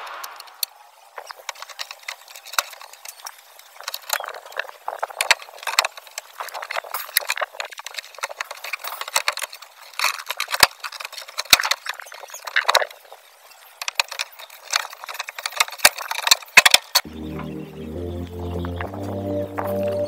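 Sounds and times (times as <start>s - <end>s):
plastic shelves clicking and rattling: 1.4s - 13.1s, 13.8s - 17.0s.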